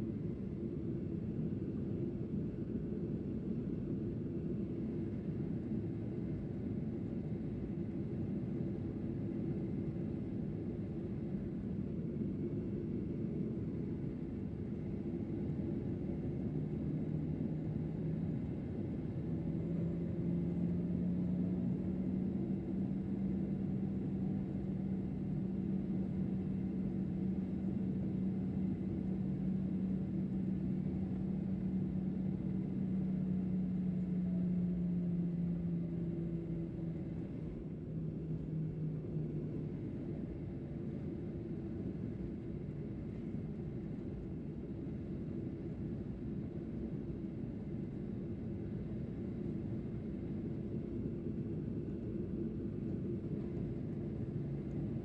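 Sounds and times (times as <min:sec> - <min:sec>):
airplane cabin engine drone: 0:00.0 - 0:55.0.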